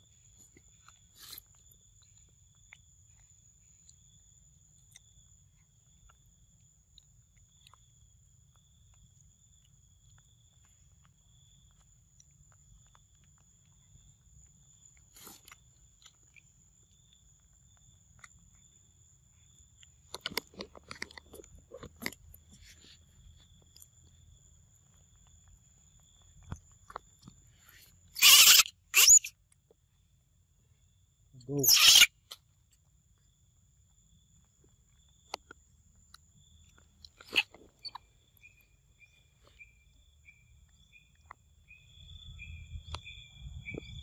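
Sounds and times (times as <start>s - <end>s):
monkeys chewing fruit: 19.4s - 28.6s.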